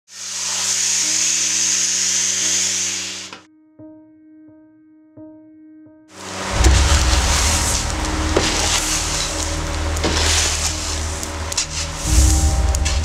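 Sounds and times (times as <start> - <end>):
roasting drum hissing: 0.1 - 3.4, 6.2 - 13.0
soft musical notes: 3.5 - 13.0.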